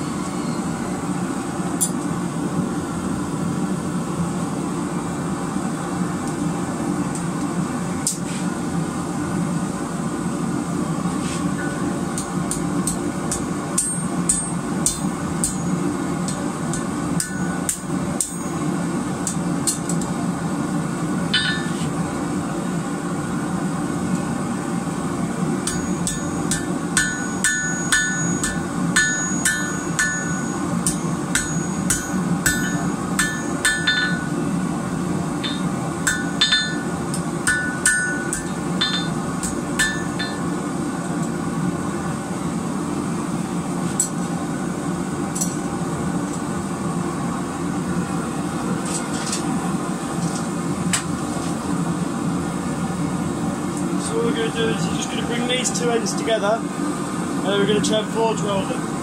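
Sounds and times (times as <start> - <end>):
steady low hum: 0.0 - 59.0
hammer clanging on anvil: 21.4 - 21.8, 25.7 - 34.4, 35.4 - 40.5.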